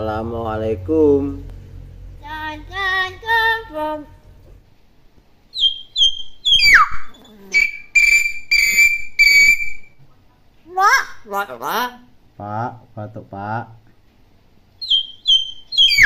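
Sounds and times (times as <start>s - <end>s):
myna bird calling and whistling: 5.5s - 10.0s, 14.8s - 16.0s.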